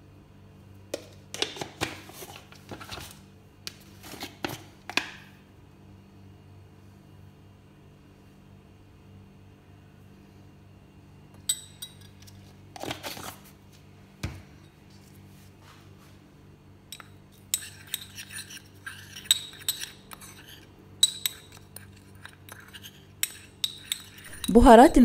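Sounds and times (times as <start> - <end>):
faint hum: 2.0 - 25.0
teaspoon clinking on ceramic: 11.4 - 12.2, 16.9 - 24.7.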